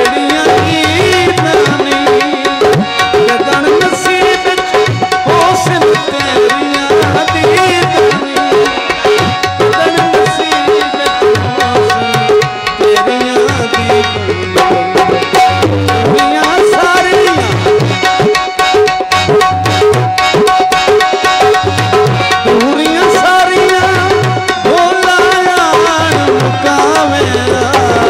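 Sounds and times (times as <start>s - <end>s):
hand drum rhythm: 0.0s - 28.0s
harmonium melody: 0.0s - 28.0s.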